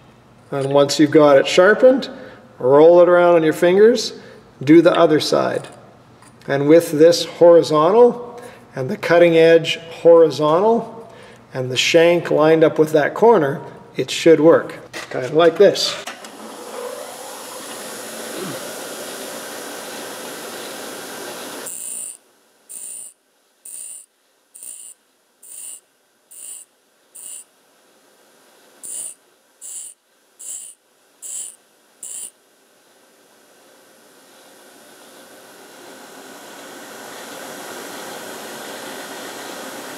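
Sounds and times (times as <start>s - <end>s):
bench grinder grinding drill bit: 21.6s - 23.1s, 23.7s - 27.4s, 28.8s - 32.3s
short bursts of sound: 21.6s - 27.5s, 28.8s - 32.3s.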